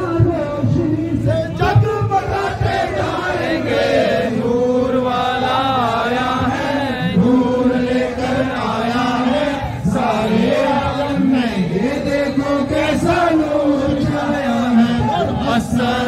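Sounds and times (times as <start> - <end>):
men chanting: 0.0 - 16.0.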